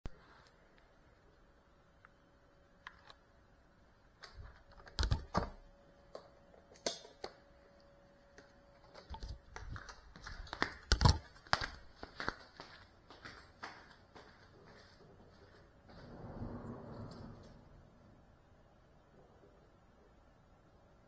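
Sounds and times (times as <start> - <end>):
camera clicks and knocks: 10.9 - 11.3.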